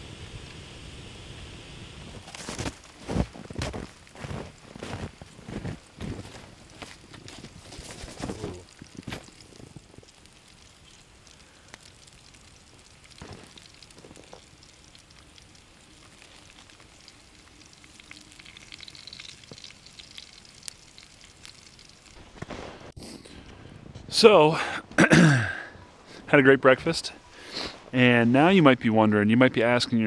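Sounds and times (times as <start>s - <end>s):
campfire crackling: 0.0s - 29.8s
bacon sizzling in a frying pan: 0.1s - 22.2s.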